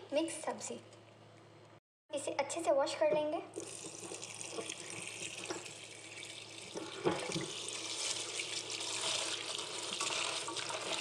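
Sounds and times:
tap water running into pot: 0:03.6 - 0:11.0
hand working cabbage in water: 0:06.3 - 0:11.0.

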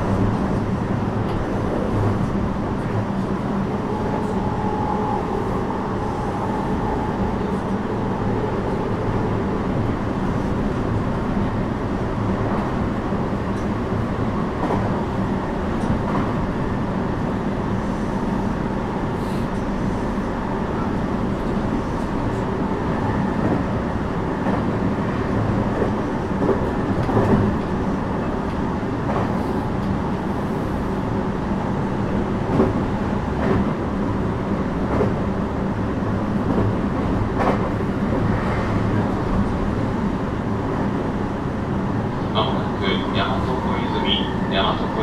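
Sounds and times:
train wheels rumbling on rail: 0:00.0 - 0:45.0.

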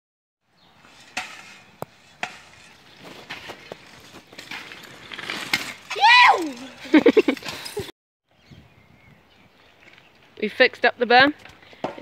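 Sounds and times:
gritty noise: 0:00.7 - 0:07.9
shovel scraping gravelly dirt: 0:00.7 - 0:07.9.

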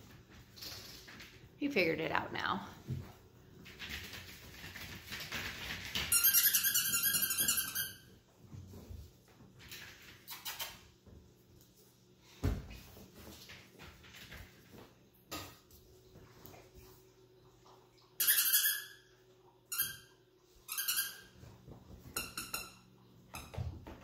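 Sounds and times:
puppies scuffling: 0:02.8 - 0:18.0
squeaky toy squeaking: 0:06.1 - 0:08.0, 0:18.2 - 0:19.0, 0:20.7 - 0:21.3.

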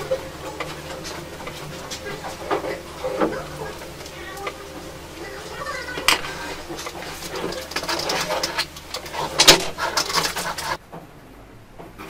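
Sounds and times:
paint tools dabbing and scraping: 0:00.0 - 0:10.8.

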